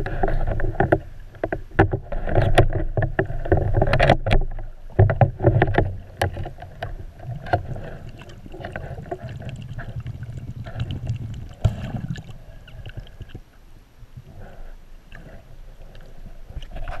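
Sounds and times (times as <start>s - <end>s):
sharp clicks and knocks: 0.0s - 7.7s
muffled underwater rush: 4.6s - 17.0s.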